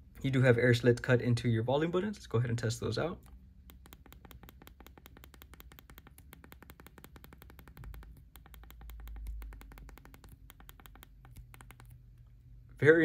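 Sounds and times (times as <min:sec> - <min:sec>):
phone volume buttons clicking: 0:03.2 - 0:12.4.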